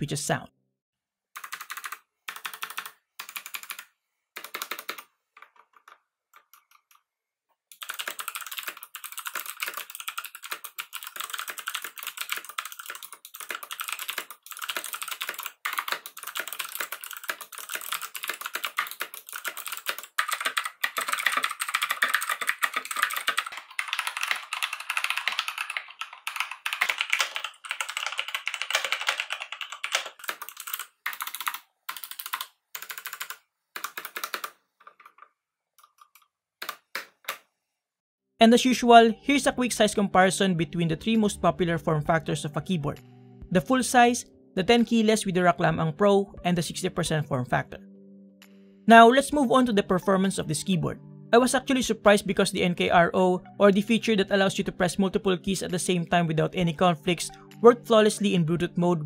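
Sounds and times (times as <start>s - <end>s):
typing on clicky mechanical keyboards: 1.4s - 7.0s, 7.7s - 37.4s.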